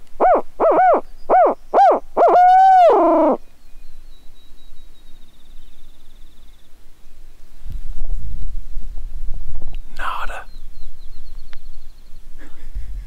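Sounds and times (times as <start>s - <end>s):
owl call hoots: 0.2s - 3.4s.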